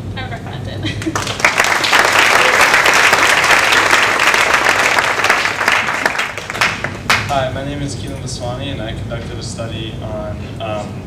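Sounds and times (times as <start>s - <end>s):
audience applauding: 1.0s - 7.5s.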